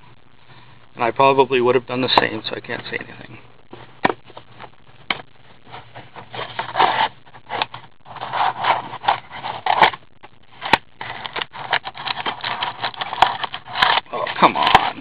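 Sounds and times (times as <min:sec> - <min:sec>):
cardboard box scraping and rustling: 0:05.7 - 0:10.0.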